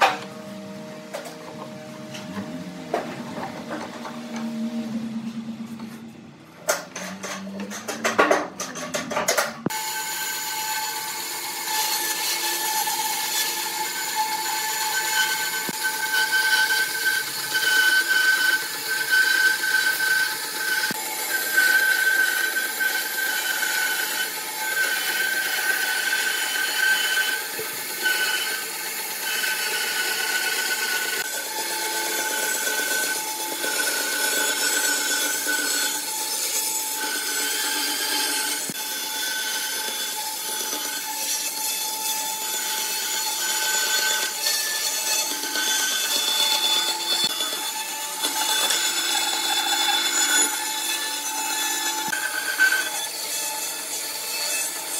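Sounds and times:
knocks and scratches: 5.2 - 9.7
bandsaw cutting wood: 9.6 - 54.9.

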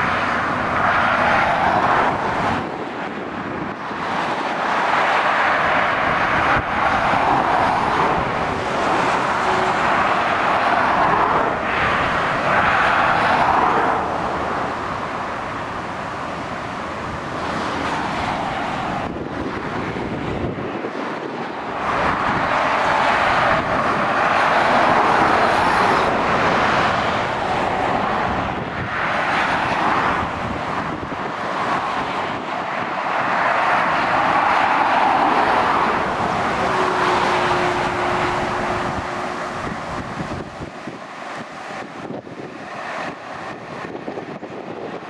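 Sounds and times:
motorway traffic passing: 0.0 - 45.0.

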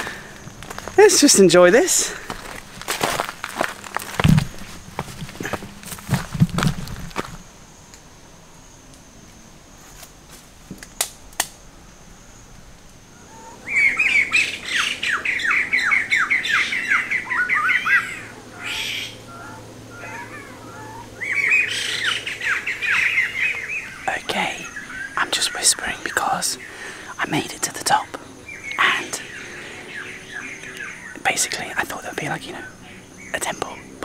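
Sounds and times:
bird calling falling notes: 13.2 - 24.0.

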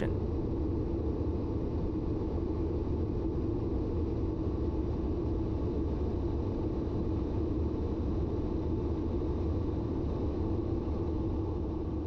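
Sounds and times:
faint hum: 0.0 - 3.0.

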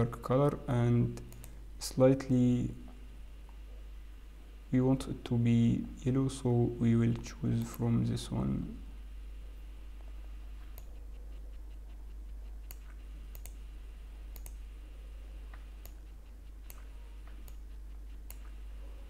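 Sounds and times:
low electrical hum: 0.0 - 19.0
computer mouse clicking: 1.2 - 1.6, 10.6 - 13.6, 14.3 - 14.6, 15.5 - 18.6.

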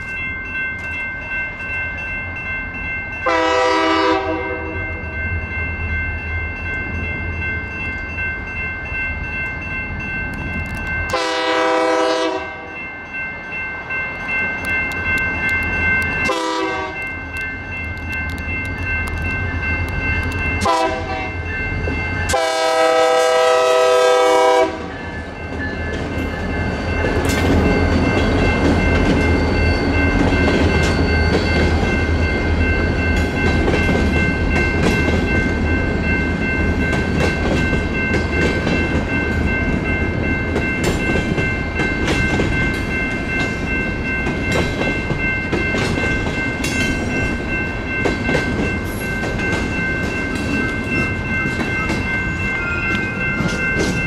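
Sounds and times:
crossing bells ringing: 0.0 - 54.0
diesel locomotive horn: 3.2 - 4.8, 11.1 - 12.7, 16.3 - 17.0, 20.6 - 21.3, 22.3 - 24.9
train wheels clickety-clack: 24.3 - 54.0.

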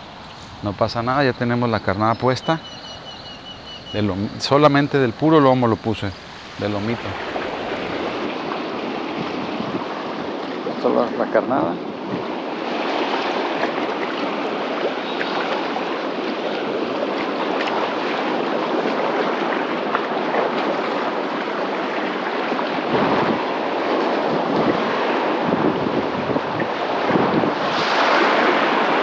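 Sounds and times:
wind buffeting microphone: 0.0 - 10.8, 11.6 - 21.6, 22.5 - 29.0
waves lapping on rocky shore: 0.0 - 29.0
small water splashes: 12.6 - 29.0.

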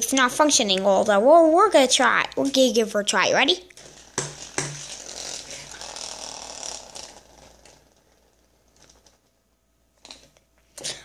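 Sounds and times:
spinning top whirring and rattling: 3.7 - 9.4.

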